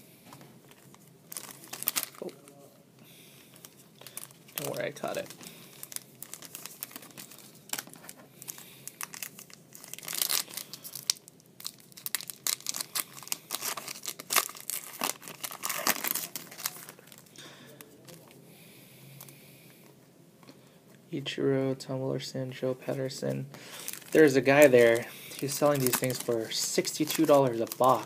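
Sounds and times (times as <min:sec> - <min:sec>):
foil wrapper crinkling and tearing: 0:00.7 - 0:02.3, 0:03.6 - 0:17.3, 0:23.7 - 0:28.0.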